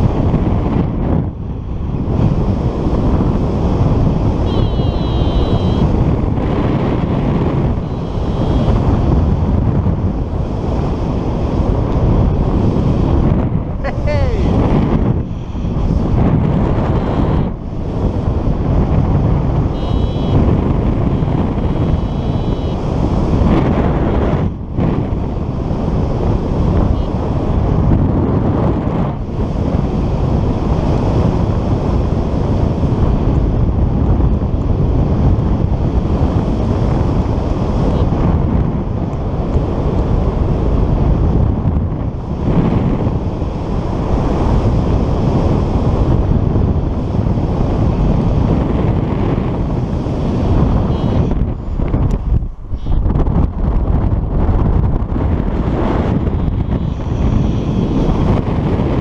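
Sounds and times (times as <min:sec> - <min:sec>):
wind buffeting microphone: 0:00.0 - 0:59.0
faint high beeps: 0:04.4 - 0:05.9, 0:07.8 - 0:08.8, 0:19.8 - 0:20.4, 0:21.2 - 0:22.8.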